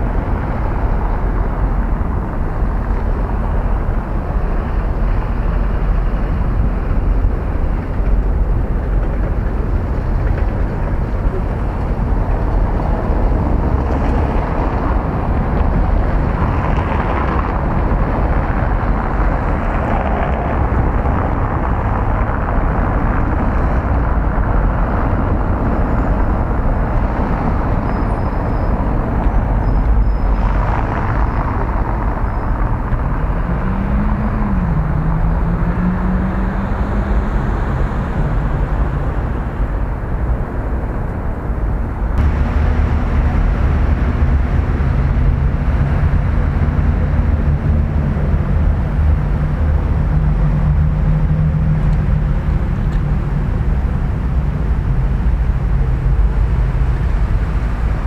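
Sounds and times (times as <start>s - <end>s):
traffic rumble: 0.0s - 58.0s
low wavering hum: 41.6s - 56.6s.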